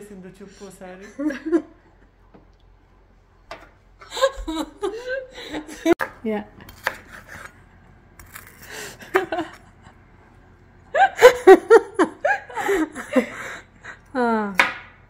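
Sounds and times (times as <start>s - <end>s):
person laughing hard: 4.0s - 6.0s, 9.0s - 9.6s, 10.9s - 14.2s.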